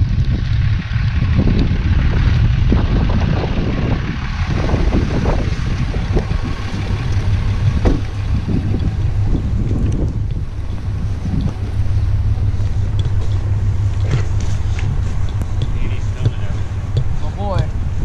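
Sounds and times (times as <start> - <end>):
wind buffeting microphone: 0.0 - 18.0
handling knocks: 7.5 - 11.7, 12.6 - 17.6.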